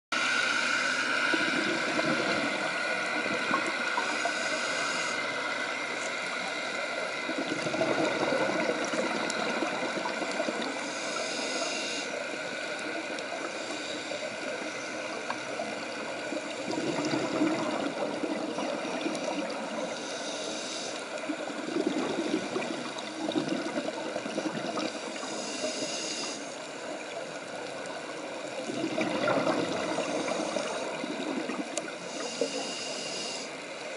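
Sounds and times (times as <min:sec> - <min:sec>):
diver breathing through regulator: 0:00.2 - 0:27.1, 0:28.6 - 0:33.8
gurgling exhaled bubbles: 0:01.3 - 0:04.6, 0:07.2 - 0:10.8, 0:15.4 - 0:19.9, 0:21.3 - 0:25.2, 0:28.6 - 0:32.4.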